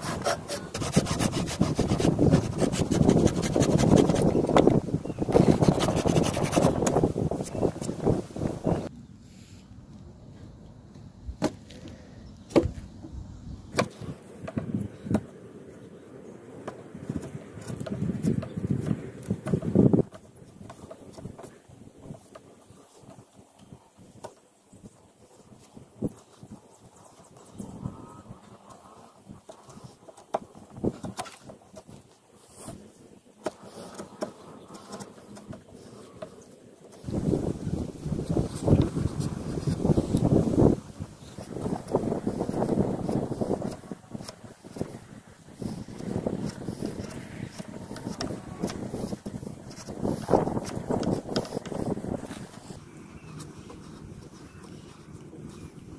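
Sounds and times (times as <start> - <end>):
chisel scraping wood: 0.0 - 7.9, 45.6 - 52.8.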